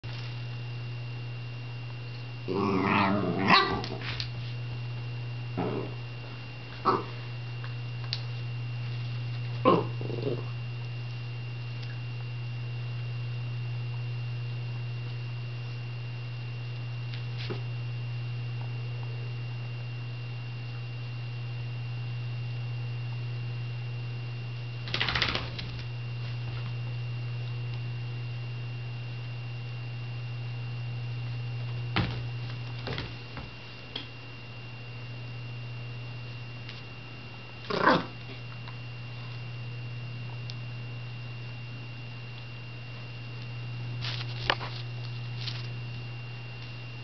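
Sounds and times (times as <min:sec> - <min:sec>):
steady low hum: 0:00.0 - 0:47.0
dogs scuffling with clicks: 0:24.9 - 0:25.9.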